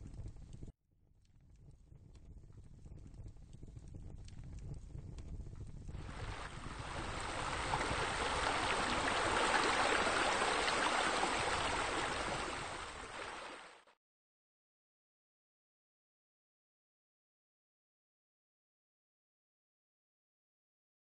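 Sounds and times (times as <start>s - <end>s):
rushing water: 6.0s - 13.9s.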